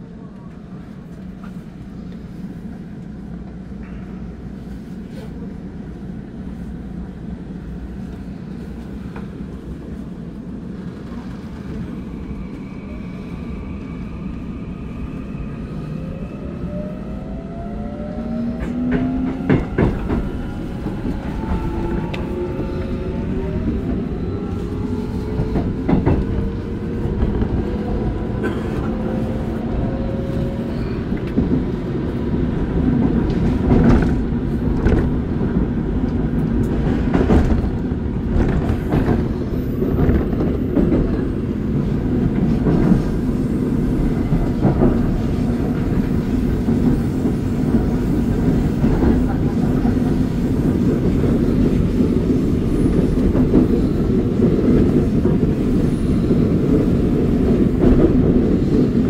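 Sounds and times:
train running rumble: 15.2s - 59.0s.

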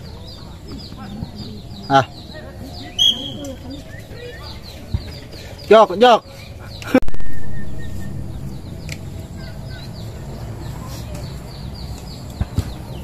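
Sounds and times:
bird chirping: 0.0s - 13.0s
wind buffeting microphone: 6.5s - 13.0s.

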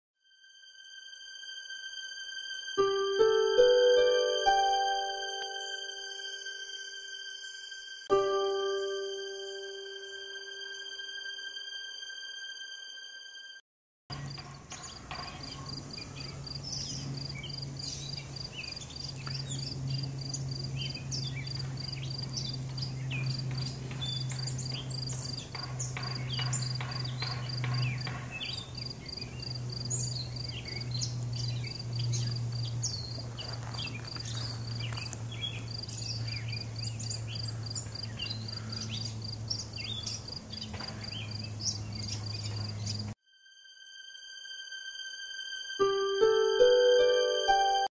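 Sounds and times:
bird chirps: 14.1s - 43.2s
insect chirping: 14.1s - 45.0s
low hum: 15.2s - 27.8s.

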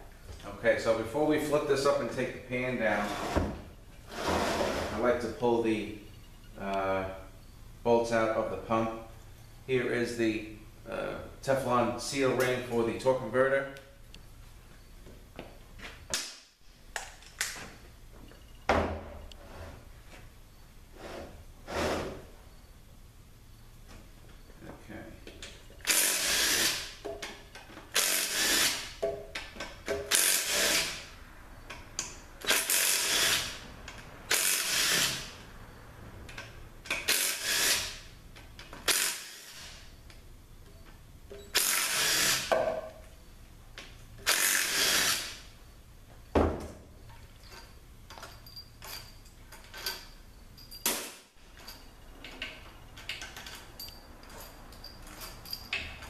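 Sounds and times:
cordless drill bursts: 25.8s - 27.0s, 27.9s - 29.0s, 30.1s - 31.0s, 32.5s - 33.6s, 34.3s - 35.3s, 37.1s - 38.1s, 38.9s - 39.8s, 41.5s - 42.5s, 44.3s - 45.4s
sharp metal clinks: 47.4s - 56.0s.

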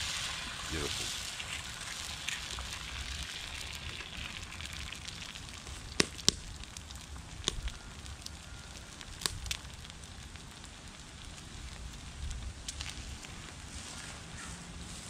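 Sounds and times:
steady hiss: 0.0s - 4.6s
wood fire crackling: 0.0s - 15.0s
sharp pops: 5.6s - 6.5s.

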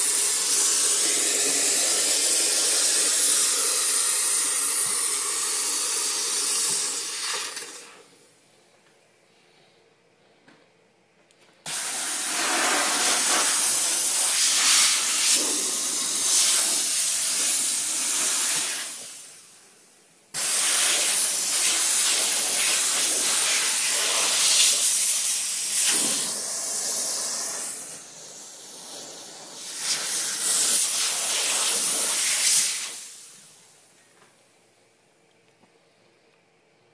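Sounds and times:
fogger sprayer hissing: 0.0s - 8.1s, 11.7s - 19.4s, 20.4s - 33.5s.

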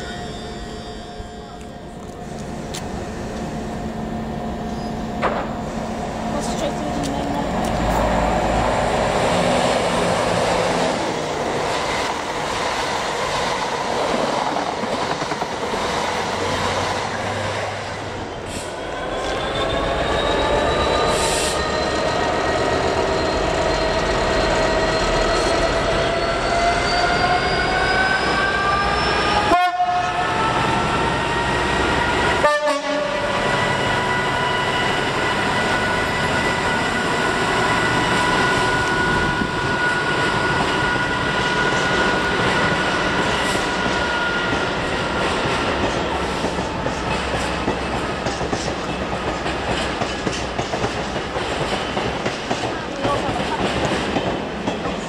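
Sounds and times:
train rumbling past: 0.0s - 55.0s
diesel locomotive engine revving: 2.1s - 14.1s.

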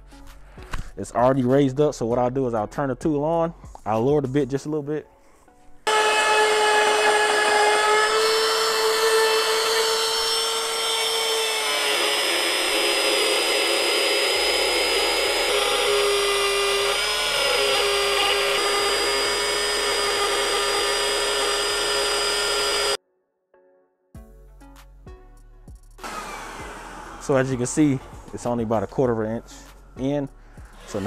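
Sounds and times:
router whining while cutting: 5.9s - 23.0s, 26.0s - 28.6s, 30.7s - 31.0s.

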